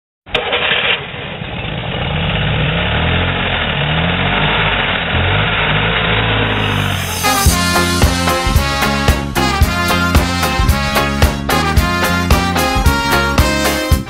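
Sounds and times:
motorbike engines revving: 0.4s - 12.9s
music: 6.5s - 14.0s.

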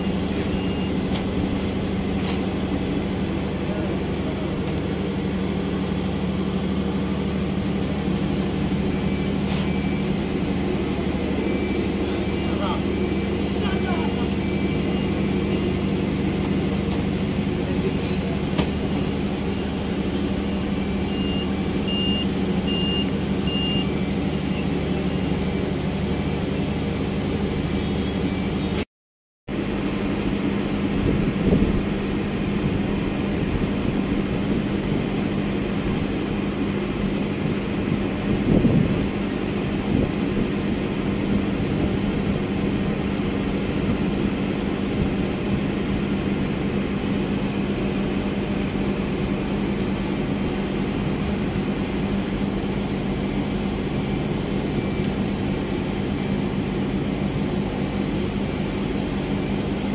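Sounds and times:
faint high beeps: 0.0s - 1.1s, 8.1s - 16.3s, 17.7s - 25.4s, 27.6s - 28.8s
boat engine drone: 0.0s - 28.8s, 29.5s - 59.9s.

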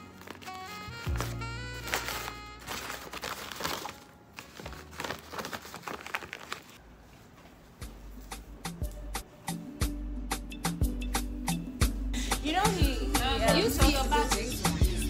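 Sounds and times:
background music picked melody: 0.0s - 5.1s, 7.8s - 15.0s
stiff fabric crinkling: 0.0s - 7.7s.

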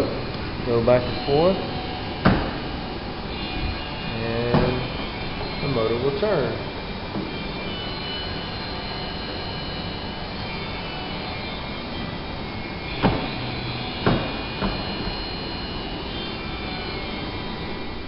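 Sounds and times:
steady rushing hiss: 0.0s - 18.0s
short knocks: 2.2s - 2.7s.

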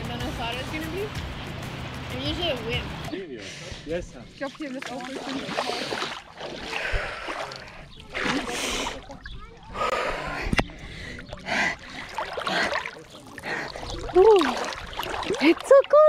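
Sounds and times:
water splashing: 4.3s - 16.0s.

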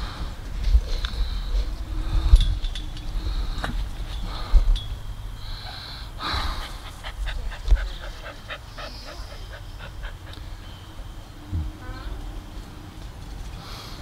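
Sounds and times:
dog panting quickly: 6.2s - 10.7s.

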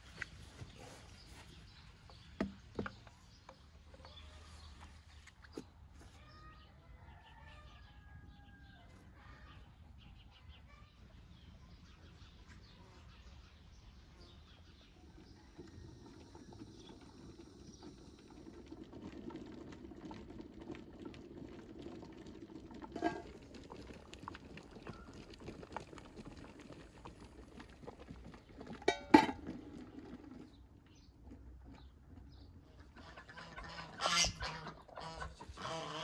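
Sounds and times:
pot simmering with low bubbling: 13.6s - 33.8s
metal lid clinking: 28.9s - 29.5s.

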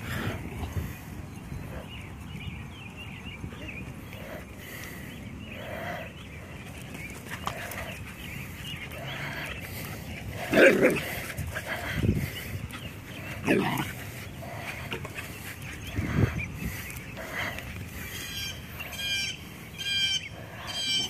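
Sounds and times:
dogs growling and barking: 8.9s - 16.2s.

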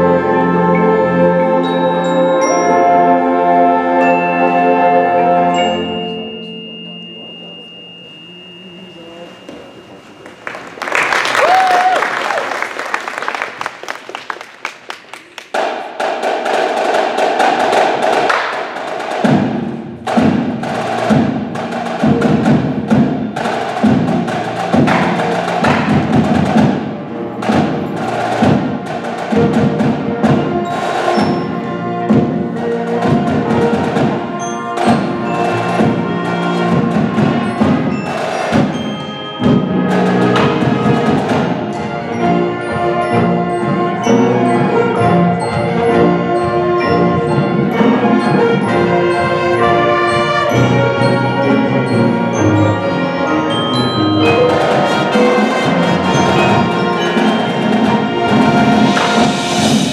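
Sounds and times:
brass playing chords: 0.0s - 6.6s, 19.8s - 59.9s
marimbas: 0.0s - 10.8s, 15.5s - 59.9s
drums pulsing: 15.5s - 50.3s, 54.2s - 59.9s.

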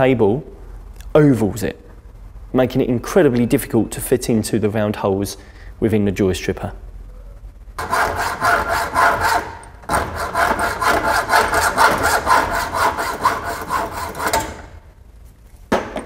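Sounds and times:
hacksaw sawing cable: 7.8s - 14.7s.

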